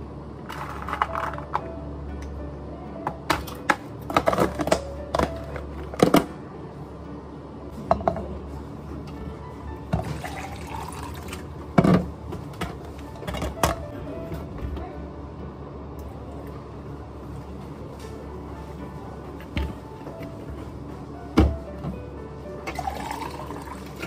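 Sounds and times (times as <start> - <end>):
soft background music: 0.0 - 24.0
steady low hum: 0.0 - 24.0
water poured into plastic cup: 22.7 - 24.0.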